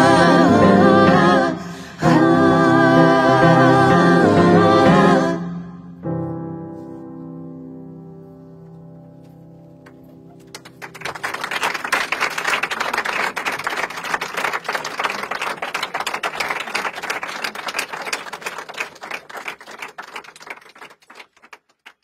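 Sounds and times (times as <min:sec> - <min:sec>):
piano music: 0:00.0 - 0:11.5
audience applauding: 0:09.8 - 0:22.0.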